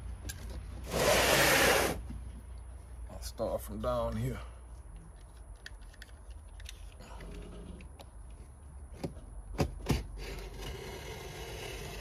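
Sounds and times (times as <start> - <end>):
small clicks and rustles: 4.9 - 8.5
blade cutting cardboard box: 10.2 - 12.0.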